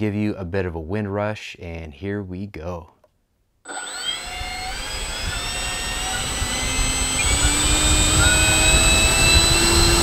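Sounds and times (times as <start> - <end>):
electric ducted fan whine: 3.7 - 10.0.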